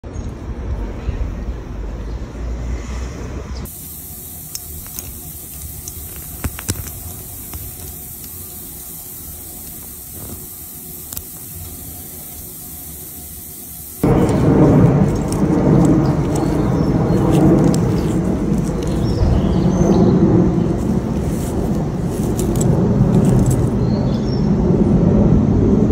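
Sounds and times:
steady hiss: 3.6 - 24.5
wind buffeting microphone: 14.0 - 25.9.

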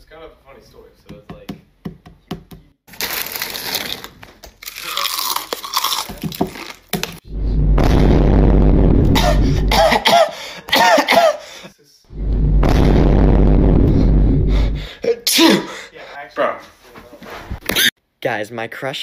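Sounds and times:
plastic snack bag crinkling: 2.9 - 7.2
loud low hum: 7.2 - 10.1, 12.1 - 15.0.

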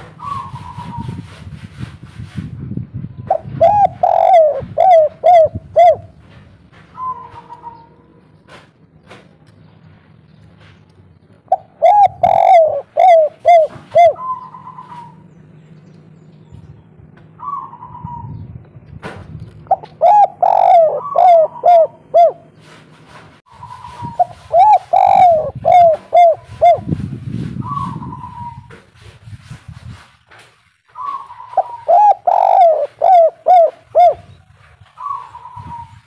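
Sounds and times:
dove cooing: 0.0 - 1.2, 3.3 - 6.2, 7.0 - 8.0, 11.5 - 15.3, 17.4 - 18.4, 19.7 - 22.7, 23.6 - 27.0, 27.6 - 28.7, 31.0 - 34.4, 35.0 - 36.0.

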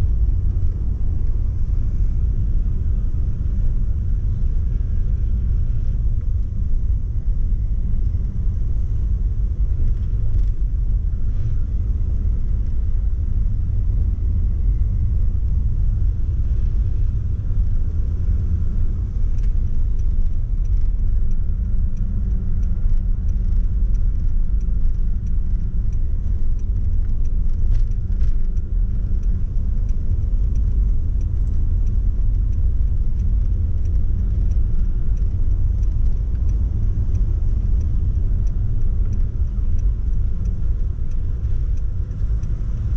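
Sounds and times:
car road and engine rumble: 0.0 - 42.9.

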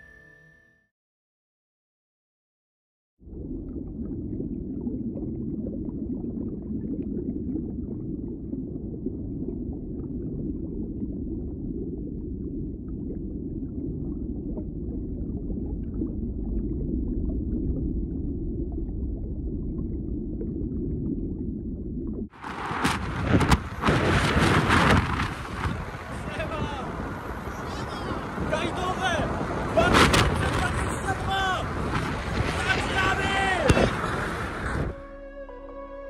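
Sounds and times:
muffled underwater rumble: 3.2 - 32.8.

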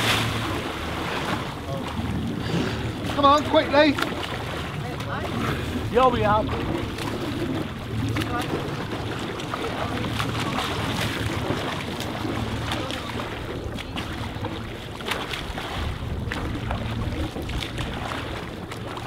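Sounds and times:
boat engine humming: 0.0 - 19.0
sea water splashing: 0.0 - 19.0
wind buffeting microphone: 0.0 - 19.0.

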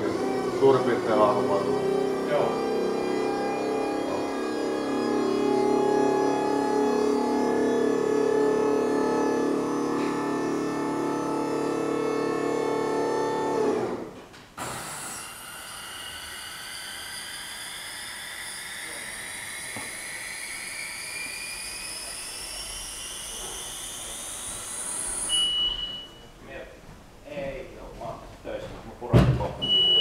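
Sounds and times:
platform lowering hiss and whine: 0.0 - 14.0, 14.6 - 26.3
hydraulic pump motor running: 0.0 - 26.0
short beep: 25.3 - 26.3, 29.6 - 30.0.

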